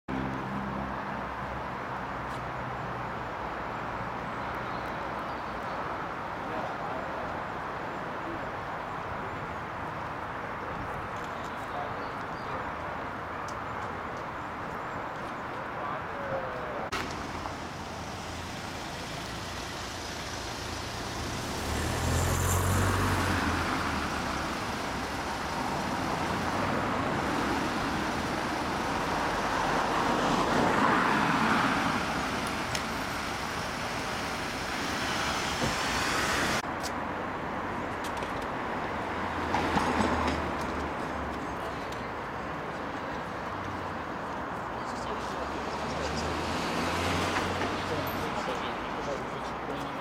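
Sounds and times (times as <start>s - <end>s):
traffic hum: 0.1s - 50.0s
cars driving past: 16.8s - 50.0s.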